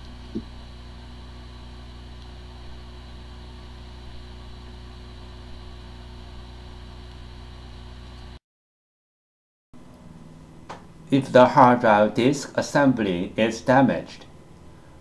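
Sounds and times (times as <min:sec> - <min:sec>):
hard drive spinning hum: 0:00.0 - 0:08.4, 0:09.8 - 0:15.0.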